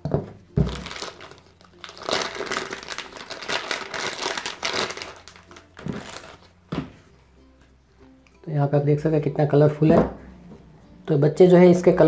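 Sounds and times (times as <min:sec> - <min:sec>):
plastic bag crinkling: 0:00.7 - 0:06.5.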